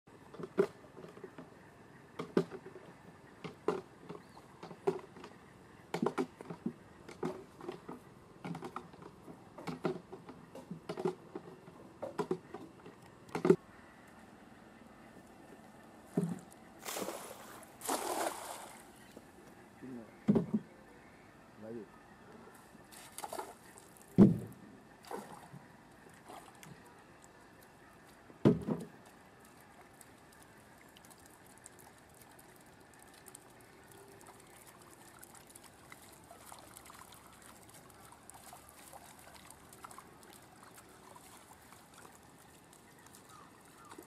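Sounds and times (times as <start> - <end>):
net splashing and thumping in water: 16.1 - 18.9, 22.9 - 25.5, 26.2 - 26.7
water trickling and ticking: 25.1 - 28.3, 28.9 - 44.0.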